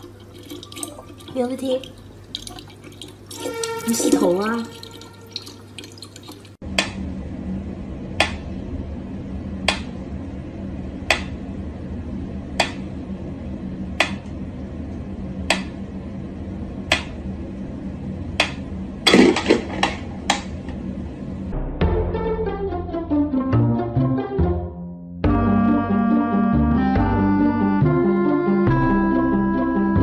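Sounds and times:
steady low hum: 6.6 - 23.2.

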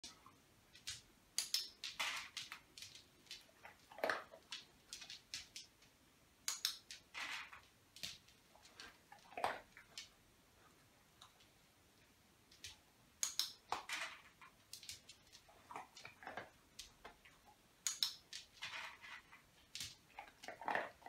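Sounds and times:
dog-training clicker clicks: 0.8 - 3.0, 6.5 - 7.0, 13.2 - 13.8, 17.8 - 18.2.

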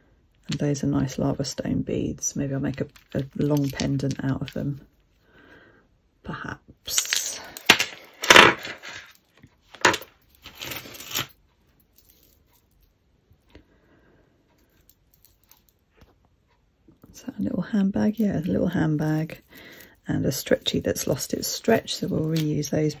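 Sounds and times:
jewellery jangling and clinking: 2.3 - 4.9, 6.9 - 13.0, 14.6 - 15.8, 17.7 - 23.0.

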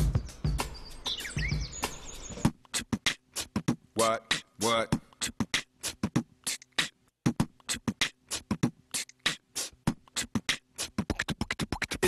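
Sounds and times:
beatboxing: 2.5 - 12.0.

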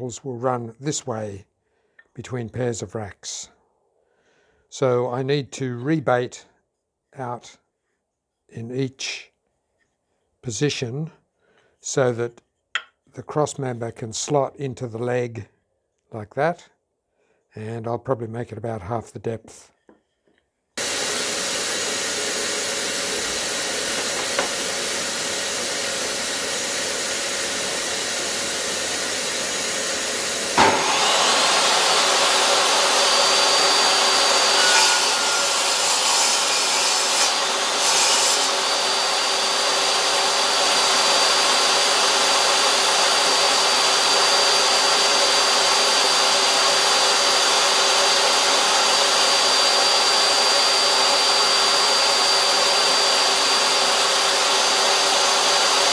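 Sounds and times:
table saw cutting wood: 20.8 - 55.9
table saw running: 20.8 - 55.9.

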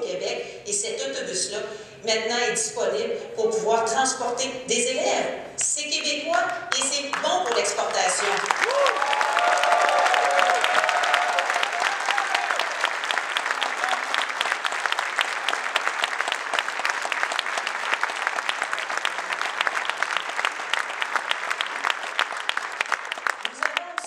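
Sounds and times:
audience applauding: 6.7 - 24.0.

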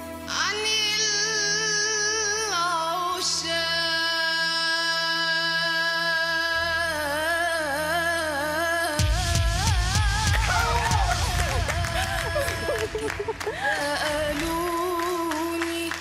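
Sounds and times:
girl singing with vibrato: 0.4 - 16.0
low backing drone: 6.8 - 16.0.

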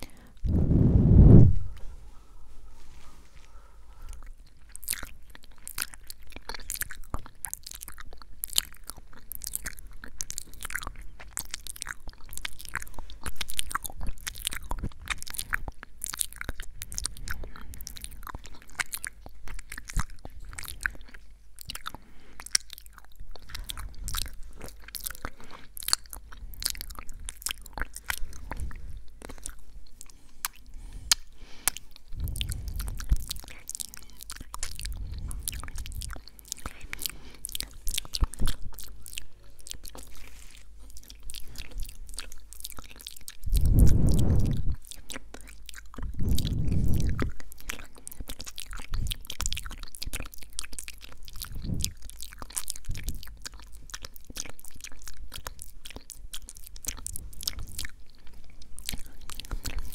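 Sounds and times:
mouth clicks: 40.9 - 58.2.

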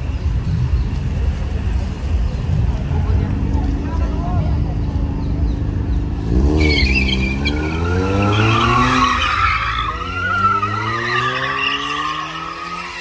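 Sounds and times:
car engine revving: 2.0 - 13.0
tyres squealing: 6.4 - 13.0.

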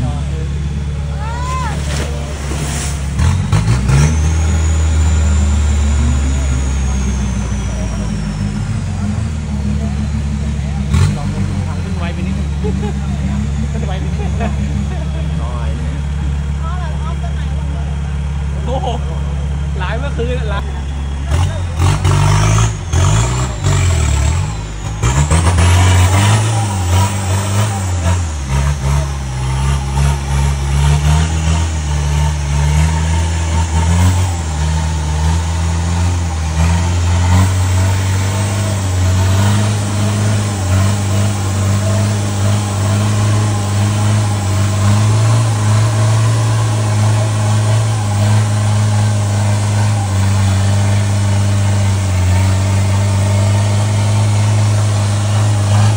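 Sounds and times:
car engine revving under load: 0.0 - 55.9.

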